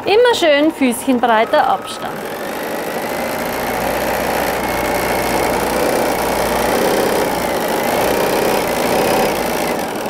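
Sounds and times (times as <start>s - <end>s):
sewing machine running: 0.0s - 10.0s.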